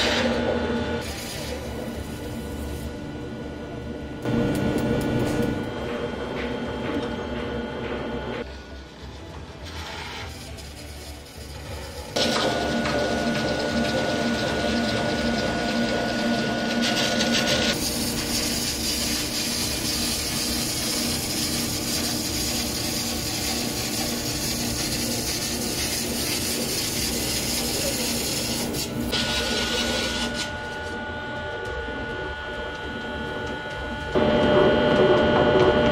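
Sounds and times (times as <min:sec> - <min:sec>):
machine humming: 0:00.0 - 0:09.2, 0:11.8 - 0:35.9
metal scraping hiss: 0:08.5 - 0:12.2.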